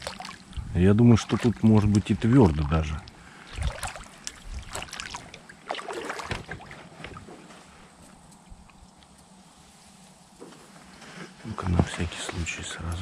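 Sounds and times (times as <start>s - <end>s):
boat splashing in water: 0.0s - 7.3s.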